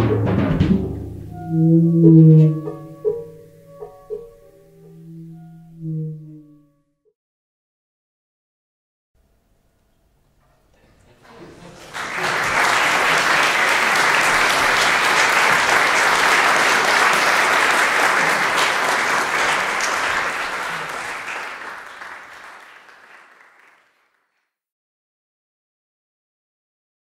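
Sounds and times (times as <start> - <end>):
audience applause: 11.2 - 24.2.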